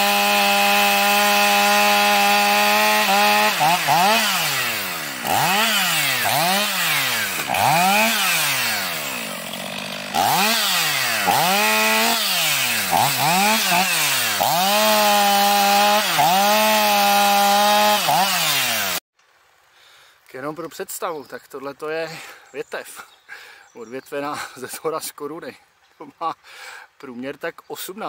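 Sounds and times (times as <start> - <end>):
chainsaw cutting branches: 0.0 - 19.0.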